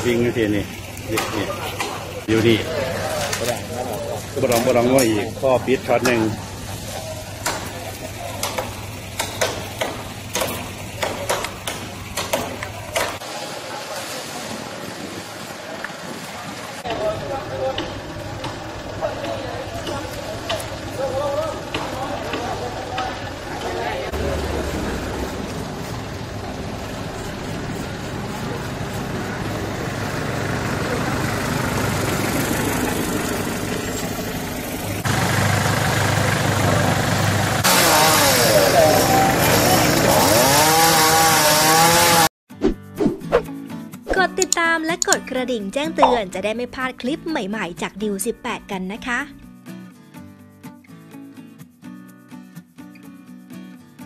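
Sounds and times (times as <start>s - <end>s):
engine idling: 0.0s - 13.2s, 16.9s - 40.6s
blade chopping branches: 1.0s - 2.0s, 5.9s - 13.3s.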